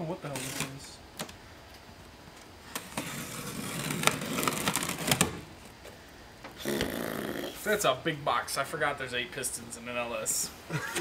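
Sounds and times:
packing tape peeling: 2.7 - 5.5.

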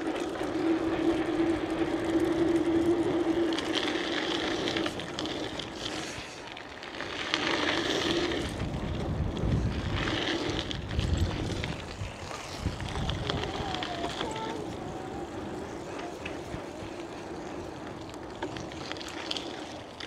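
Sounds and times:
bicycle tyre noise: 0.0 - 20.0
wind on microphone: 7.5 - 18.0.

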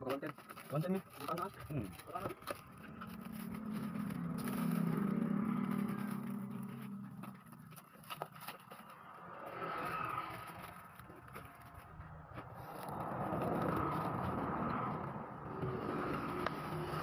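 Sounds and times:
plastic wrap crinkling and tearing: 0.0 - 11.9
vehicle engine hum: 0.0 - 17.0.

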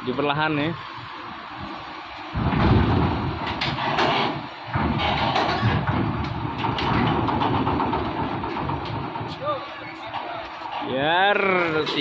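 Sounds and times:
diesel engine under load: 0.0 - 12.0
rattling and metallic clanks: 2.4 - 11.1.

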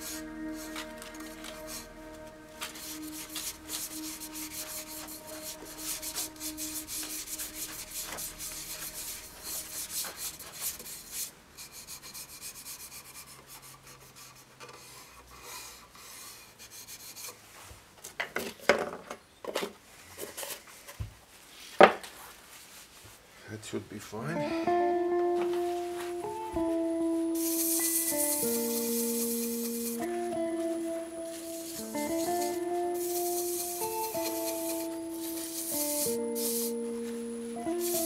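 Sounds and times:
cloth rubbing inside wooden bowl: 0.0 - 12.8, 27.4 - 38.0.

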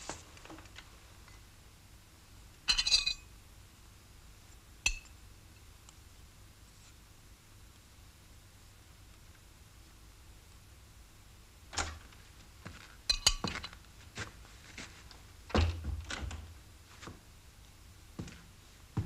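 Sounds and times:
dishes and cutlery clinking: 2.7 - 3.2, 13.1 - 13.8
door opening: 11.7 - 12.2.

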